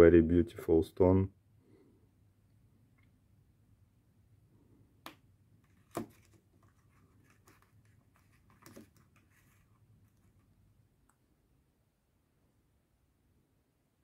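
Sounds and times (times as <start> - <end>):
faint rustling: 5.6 - 10.7.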